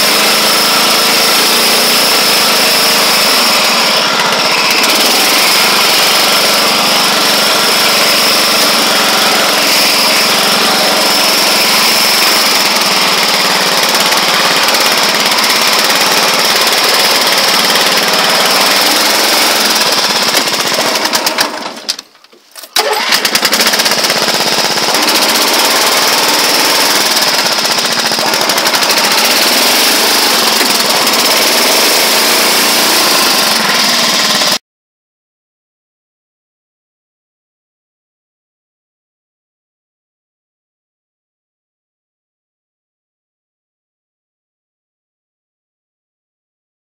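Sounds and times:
lawn tractor engine running: 0:00.0 - 0:34.6.

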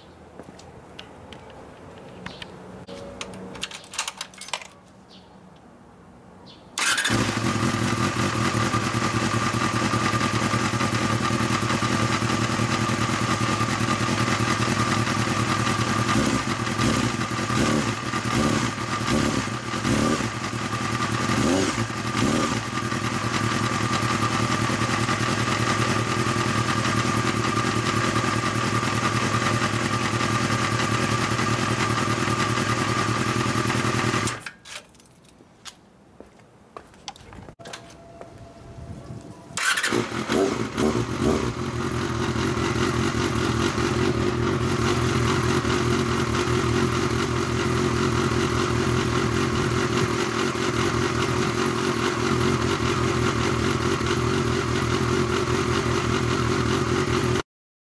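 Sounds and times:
motorcycle engine running: 0:06.8 - 0:34.4, 0:39.6 - 0:57.4.

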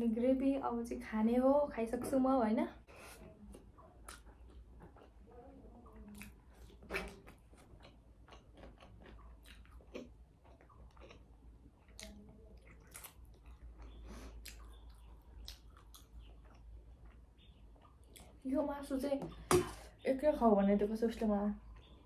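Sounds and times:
wet mouth chewing sounds: 0:03.0 - 0:05.2, 0:06.0 - 0:18.4.

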